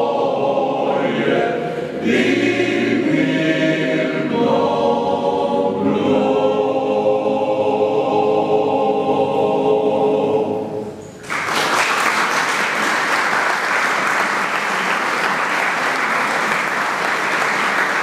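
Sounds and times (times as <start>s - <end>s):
male choir singing chord: 0.0s - 10.9s
audience applause: 11.2s - 18.0s.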